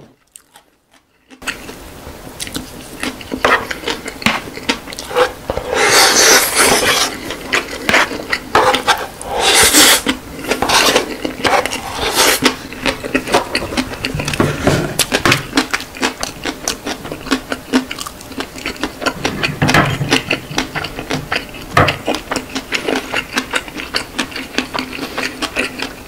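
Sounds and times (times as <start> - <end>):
mouth eating sounds: 2.4 - 26.0
wooden spoon scraping bowl: 4.9 - 15.5.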